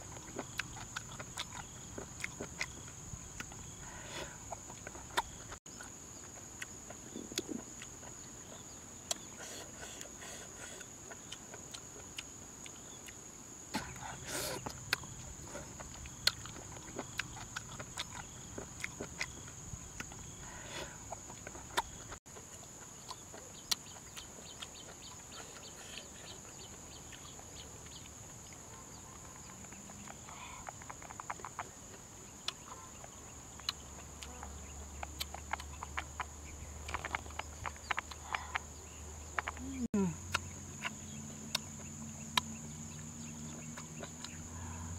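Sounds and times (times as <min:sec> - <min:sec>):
chewing and lip-smacking: 0:00.0 - 0:44.9
high insect drone: 0:24.1 - 0:44.9.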